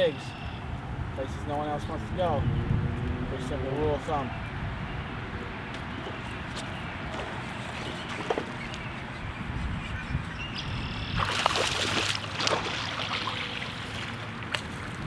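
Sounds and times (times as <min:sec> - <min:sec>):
fish thrashing and splashing: 0:07.1 - 0:09.1, 0:11.1 - 0:15.0.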